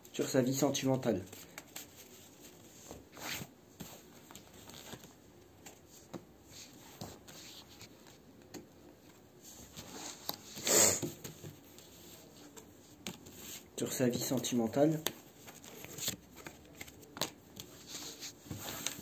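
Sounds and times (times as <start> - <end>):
cards being shuffled: 14.2 - 19.0.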